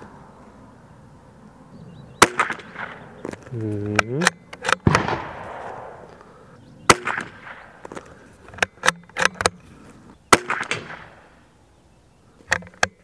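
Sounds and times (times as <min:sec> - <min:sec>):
rifle shots with echo: 0:02.2 - 0:03.2, 0:04.2 - 0:06.2, 0:06.8 - 0:07.8, 0:10.3 - 0:11.4
rifle action clicks: 0:02.2 - 0:06.3, 0:06.9 - 0:09.6.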